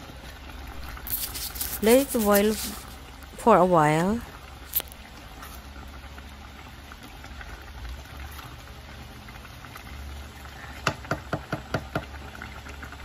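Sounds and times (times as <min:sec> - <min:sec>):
soup boiling: 0:00.0 - 0:13.0
paddle knocking against pot: 0:10.8 - 0:12.2.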